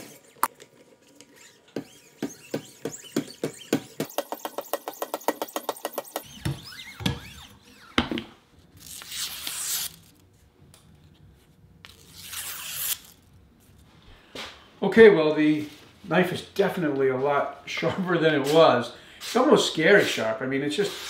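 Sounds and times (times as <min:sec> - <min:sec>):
blade slicing paper: 0:08.8 - 0:10.2, 0:11.9 - 0:13.2.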